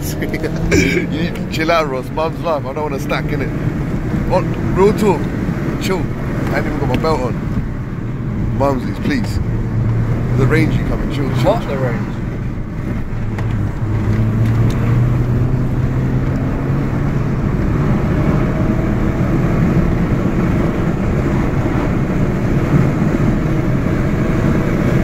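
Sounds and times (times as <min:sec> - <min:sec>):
car engine drone: 0:00.0 - 0:25.0
road noise: 0:00.0 - 0:25.0.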